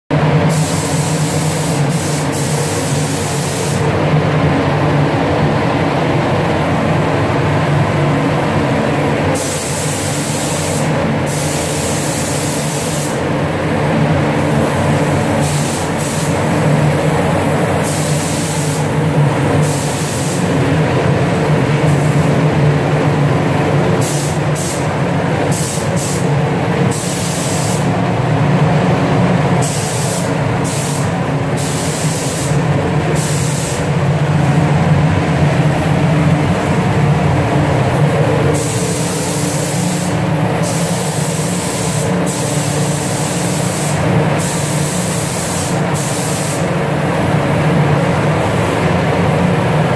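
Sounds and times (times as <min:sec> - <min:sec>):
spray gun hissing: 0:00.4 - 0:03.9, 0:08.9 - 0:13.4, 0:14.3 - 0:22.4, 0:23.8 - 0:28.0, 0:29.6 - 0:34.4, 0:37.9 - 0:47.1
low mechanical drone: 0:03.8 - 0:09.4, 0:33.8 - 0:41.2.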